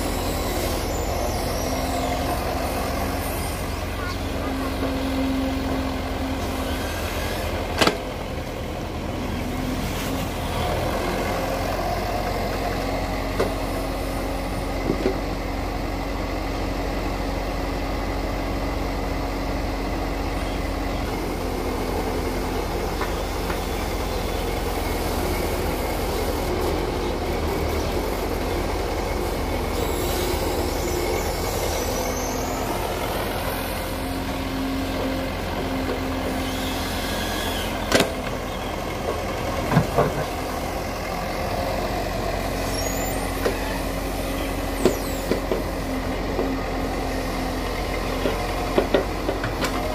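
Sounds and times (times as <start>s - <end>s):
hydraulic whine: 0.0s - 8.2s, 20.2s - 38.8s, 39.6s - 49.9s
diesel engine under load: 0.0s - 49.9s.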